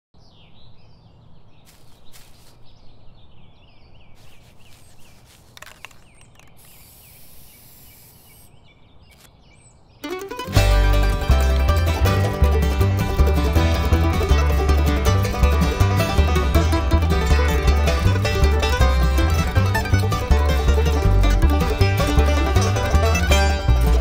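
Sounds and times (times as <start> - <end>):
small birds chirping: 0.2 - 10.2
spray paint can hissing: 5.8 - 8.5
bluegrass band playing: 10.0 - 24.0.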